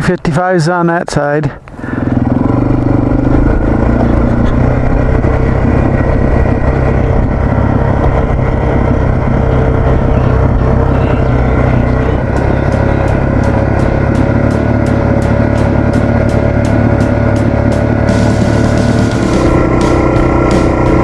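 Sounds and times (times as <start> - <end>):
motorcycle engine running: 1.6 - 21.0.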